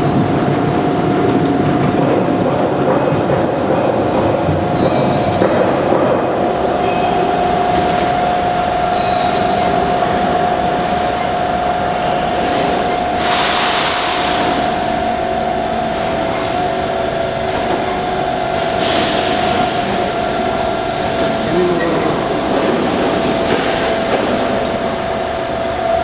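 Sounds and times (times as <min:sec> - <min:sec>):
machine motor hum with whine: 0:00.0 - 0:26.0
hiss: 0:13.2 - 0:14.7.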